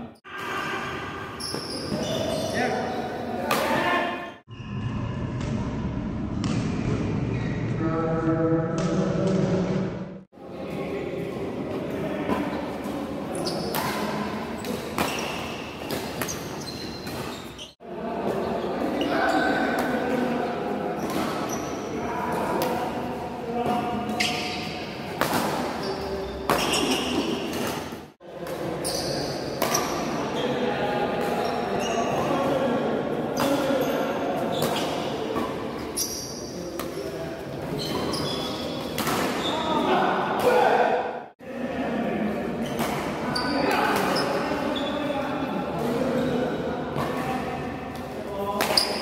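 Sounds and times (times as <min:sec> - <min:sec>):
shoes squeaking on court: 0:01.3 - 0:03.2, 0:13.3 - 0:17.8, 0:21.0 - 0:21.9, 0:24.1 - 0:25.0, 0:25.6 - 0:28.0, 0:28.8 - 0:30.1, 0:31.4 - 0:32.2, 0:33.4 - 0:36.9, 0:37.6 - 0:39.8, 0:42.6 - 0:45.0, 0:48.7 - 0:49.0
racket hitting shuttlecock: 0:13.6 - 0:17.7, 0:23.6 - 0:25.8, 0:37.9 - 0:39.4, 0:47.9 - 0:49.0.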